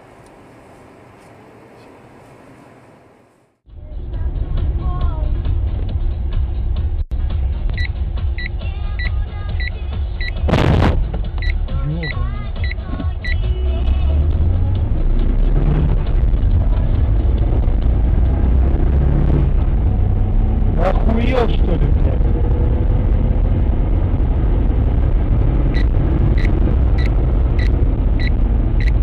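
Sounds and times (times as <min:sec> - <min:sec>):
car engine and road noise: 0:00.0 - 0:29.0
short high beeps: 0:25.8 - 0:29.0.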